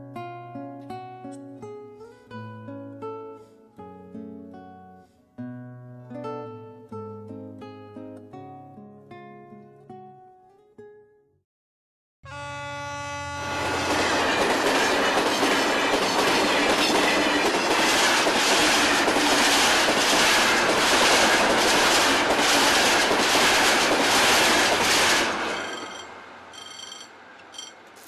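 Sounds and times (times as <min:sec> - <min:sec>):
train wheels on rails: 0:13.5 - 0:28.0
wheels clickety-clack: 0:13.8 - 0:28.0.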